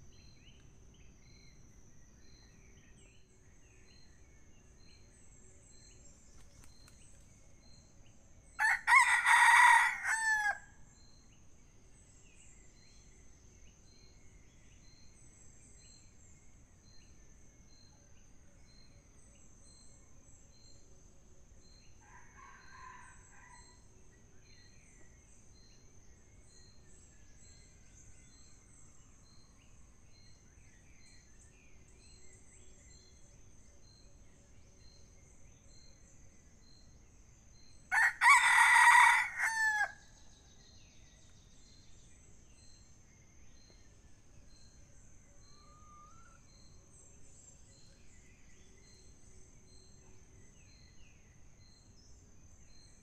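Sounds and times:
rooster crowing: 8.6s - 10.6s, 37.9s - 40.0s.

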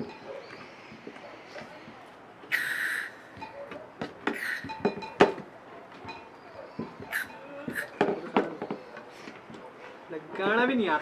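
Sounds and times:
gas hissing: 2.5s - 3.2s.

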